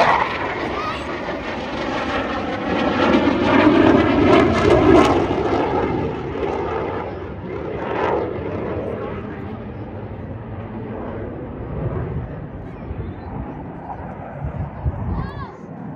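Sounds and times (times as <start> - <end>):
jets flying past: 0.0 - 15.9.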